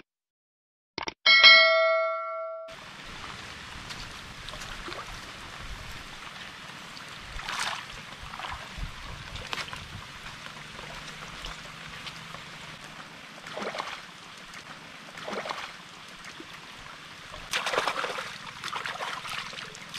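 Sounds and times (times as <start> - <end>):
gusty wind on microphone: 3.1 - 6.3, 7.2 - 10.4.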